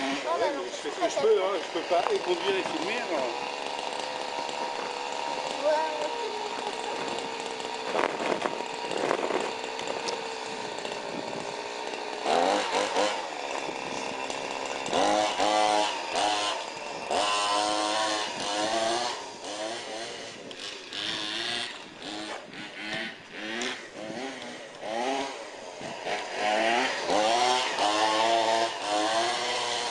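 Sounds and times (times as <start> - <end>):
small two-stroke engine revving: 0.0 - 29.9.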